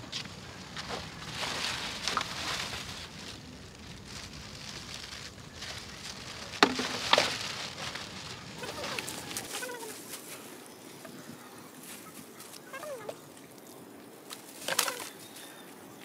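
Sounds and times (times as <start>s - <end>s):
plastic bag crinkling: 0.6s - 10.4s.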